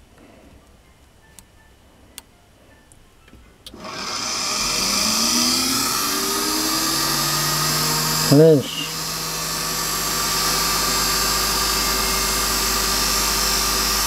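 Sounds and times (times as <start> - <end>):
electric motor whine: 3.7 - 14.0.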